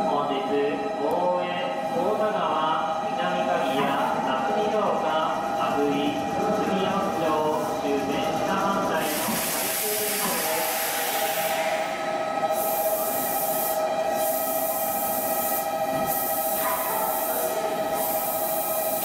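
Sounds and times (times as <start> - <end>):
electric train pulling in: 0.0 - 19.0
train equipment whine: 0.0 - 19.0
air hissing: 8.9 - 19.0.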